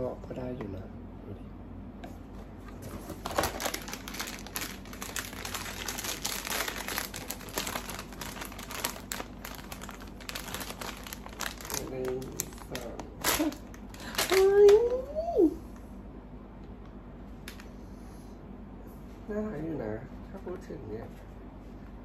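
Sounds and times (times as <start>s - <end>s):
plastic packet crinkling: 3.1s - 15.0s.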